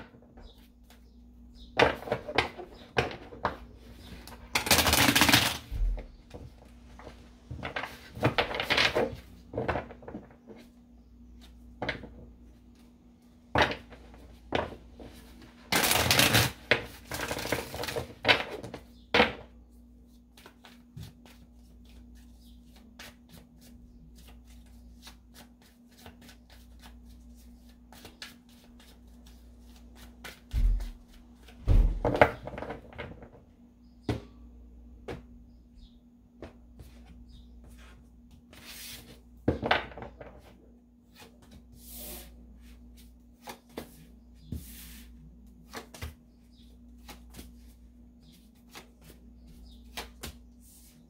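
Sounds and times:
cards shuffling by hand: 0:04.6 - 0:05.7, 0:15.7 - 0:18.1, 0:20.1 - 0:31.6.

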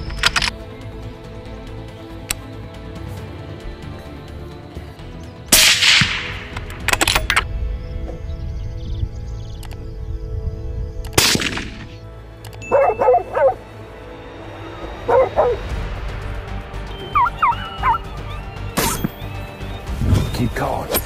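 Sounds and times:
background music: 0:00.0 - 0:21.0
rifle shot: 0:05.5 - 0:07.3, 0:11.2 - 0:12.0
dog yelping and barking: 0:12.7 - 0:13.6, 0:15.1 - 0:15.6, 0:17.2 - 0:18.0.

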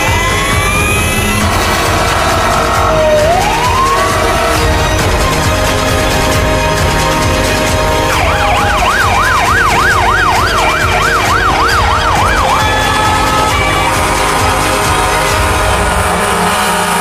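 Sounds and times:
electronic siren yelping: 0:00.0 - 0:04.8, 0:08.1 - 0:14.2.

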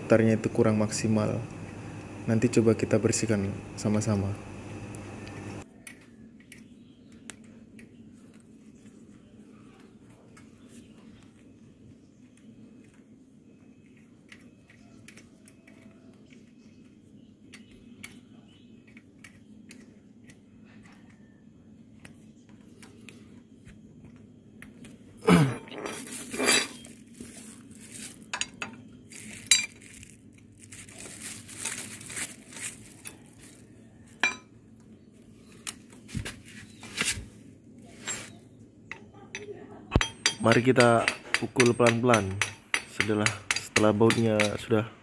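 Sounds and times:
wrench clinking on metal: 0:38.9 - 0:44.7
sharp metal clanks: 0:39.9 - 0:44.7.

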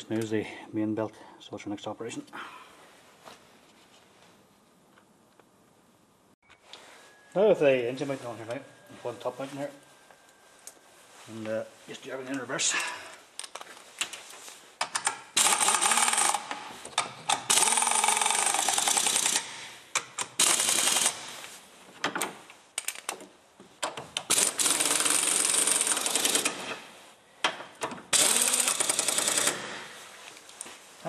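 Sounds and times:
impact wrench hammering: 0:14.8 - 0:19.6, 0:27.5 - 0:29.8.

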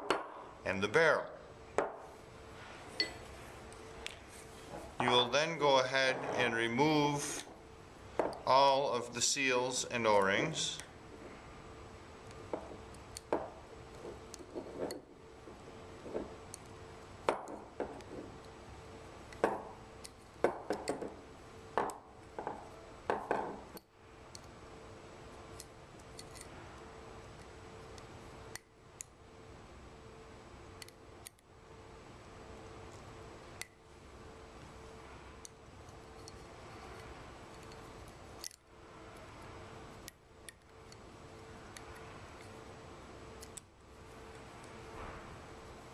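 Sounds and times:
faint steady hum: 0:00.0 - 0:45.9
metal parts clicking and clinking: 0:25.6 - 0:26.5.

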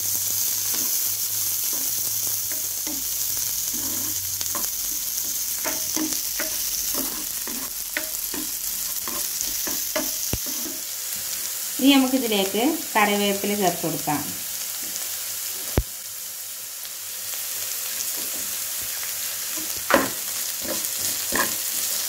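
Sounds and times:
onions sizzling in hot oil: 0:00.0 - 0:22.0
spoon scraping and tapping pan: 0:01.7 - 0:03.1, 0:03.7 - 0:10.8, 0:19.5 - 0:21.8.

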